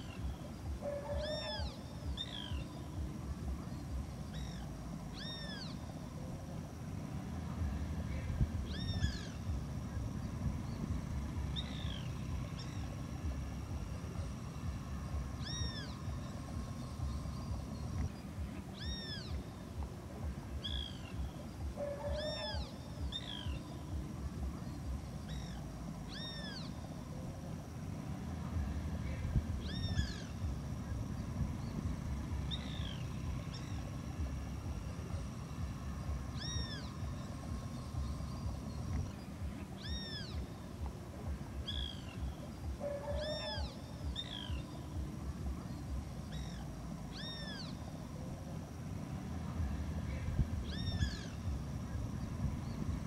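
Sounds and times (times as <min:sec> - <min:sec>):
faint high whine: 0:00.0 - 0:53.0
low rumble: 0:00.0 - 0:53.0.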